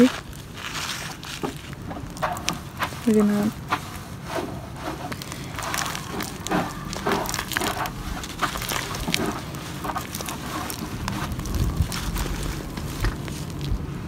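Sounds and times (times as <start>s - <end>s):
dirt crunching and crumbling: 0.0s - 14.0s
dull low thuds: 4.5s - 14.0s.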